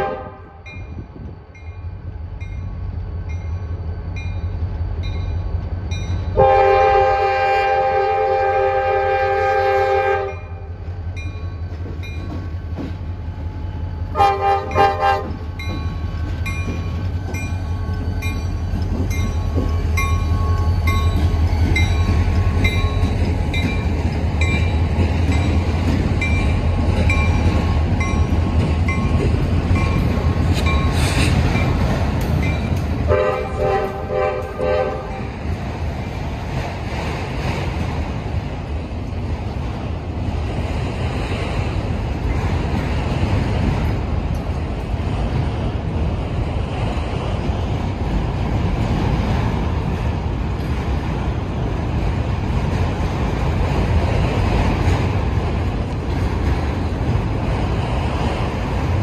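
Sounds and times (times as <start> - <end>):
train air horn: 0.0 - 0.6, 6.4 - 10.6, 14.1 - 15.4, 33.1 - 35.2
diesel locomotives rumbling: 0.0 - 59.0
rail cars rolling: 0.0 - 59.0.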